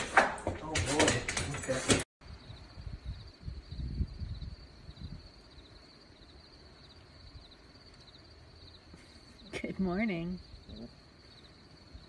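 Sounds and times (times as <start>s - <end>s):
crickets chirping: 2.2s - 12.0s.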